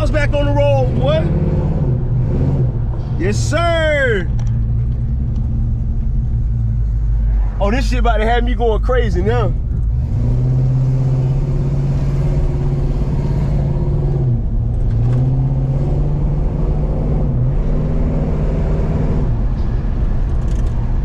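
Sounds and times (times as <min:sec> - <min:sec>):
car engine running: 0:00.0 - 0:18.1.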